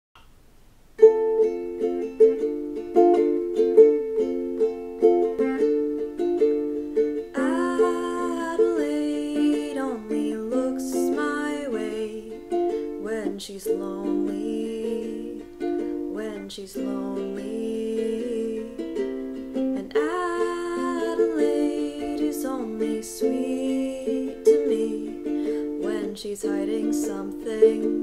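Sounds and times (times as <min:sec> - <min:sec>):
ukulele chords: 0:00.2 - 0:28.0
woman singing: 0:07.3 - 0:28.0.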